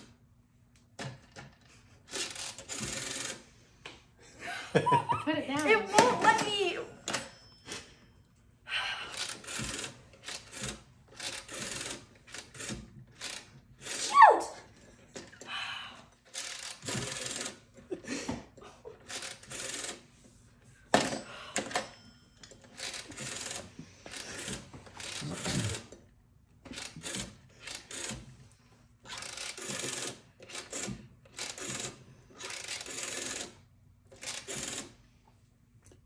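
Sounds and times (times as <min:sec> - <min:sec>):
rotary phone dial whirring clicks: 0:00.8 - 0:04.0, 0:09.1 - 0:14.0, 0:16.2 - 0:17.9, 0:19.0 - 0:20.1, 0:21.5 - 0:35.1.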